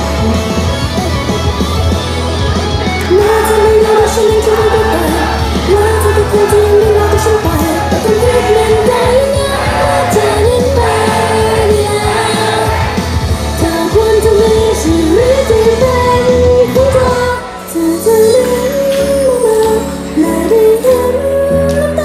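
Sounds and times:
backing track bass beat: 0:00.0 - 0:17.4
female group singing pop song: 0:03.1 - 0:22.0.

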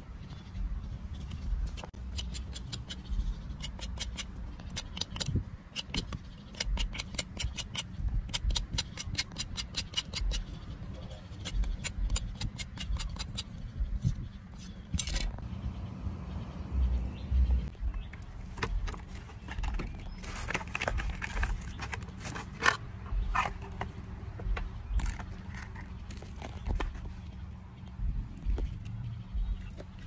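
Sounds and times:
knife scraping bark: 0:01.2 - 0:15.3.

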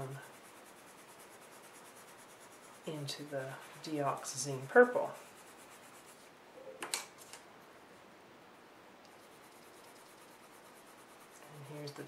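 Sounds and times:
colored pencil strokes on paper: 0:00.0 - 0:06.3, 0:09.1 - 0:12.0.

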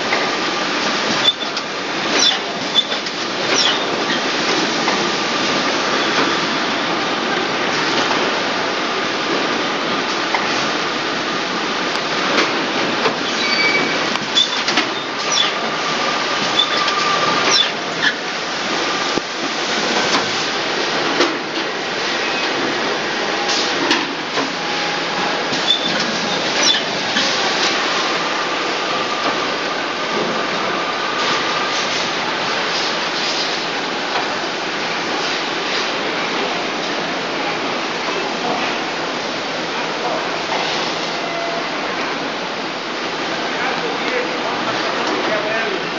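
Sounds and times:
machine clicks and clacks: 0:14.1 - 0:15.8, 0:23.5 - 0:24.6.

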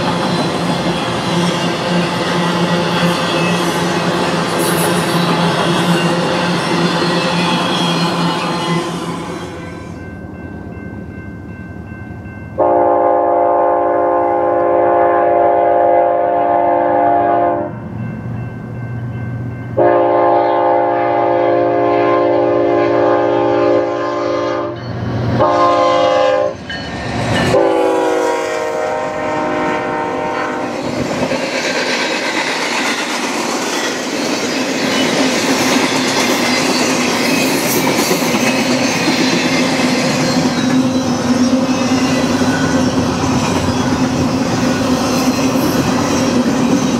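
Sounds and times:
train cars rolling on rails: 0:00.0 - 0:13.2, 0:24.7 - 0:46.9
locomotive air horn: 0:12.6 - 0:17.8, 0:19.8 - 0:24.8, 0:25.4 - 0:26.6, 0:27.5 - 0:30.8.

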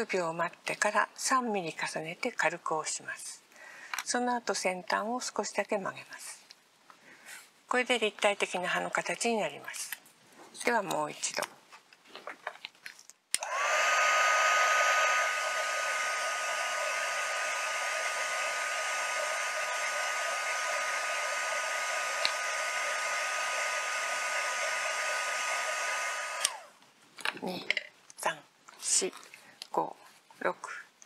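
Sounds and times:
heat tool fan whine and hiss: 0:13.4 - 0:26.8
heat tool switch click: 0:22.2 - 0:22.4.

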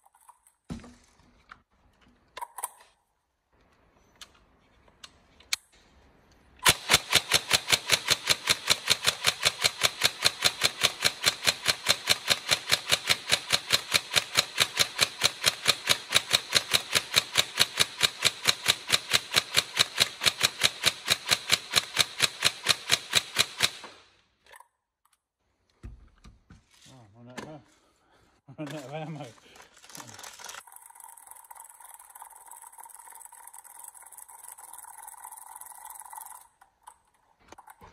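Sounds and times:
airsoft rifle automatic fire: 0:06.6 - 0:24.1.

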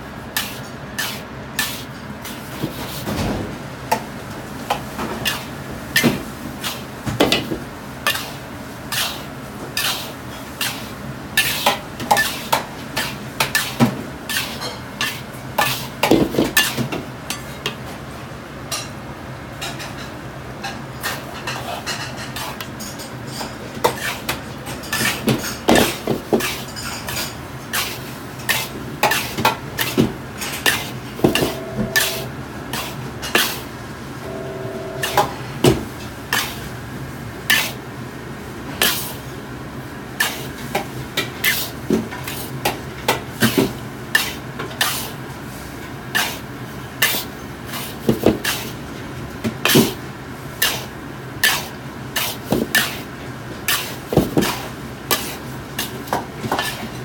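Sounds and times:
metal ladle scraping a wok: 0:30.6 - 0:33.6
steady low hum: 0:30.6 - 0:37.0.

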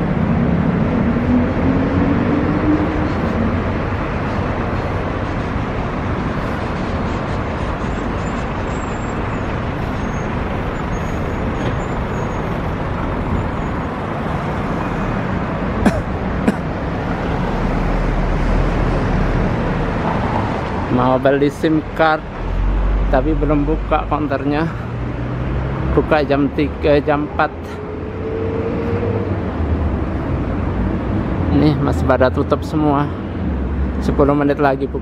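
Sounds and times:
traffic hum: 0:00.0 - 0:35.0.

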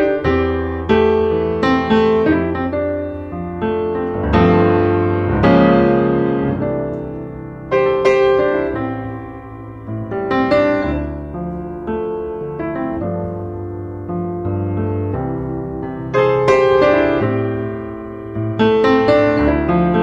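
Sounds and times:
piano notes and chords: 0:00.0 - 0:20.0.

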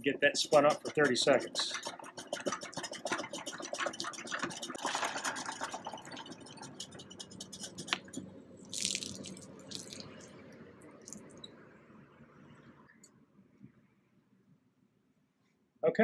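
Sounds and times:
spin dryer clicking: 0:00.0 - 0:08.1
water splashing: 0:08.7 - 0:10.3.

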